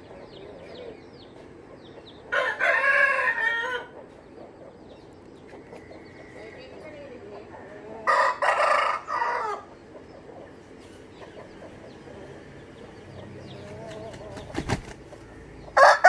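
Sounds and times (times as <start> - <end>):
rooster crowing: 2.3 - 3.9, 8.0 - 9.7, 15.8 - 16.0
wings flapping: 13.6 - 15.2.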